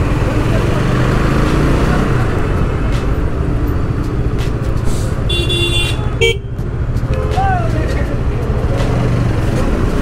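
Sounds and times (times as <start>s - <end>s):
road traffic rumble: 0.0s - 10.0s
vehicle horn honking: 5.3s - 6.5s.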